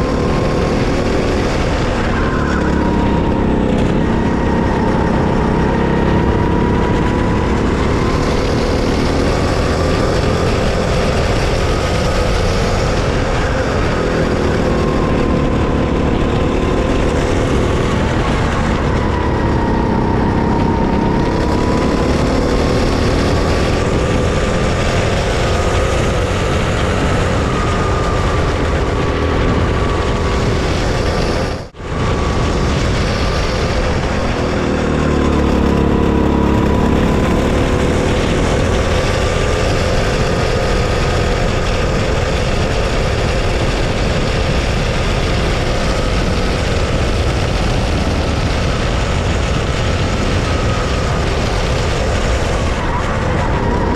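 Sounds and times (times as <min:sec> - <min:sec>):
go-kart engine racing: 0:00.0 - 0:53.9.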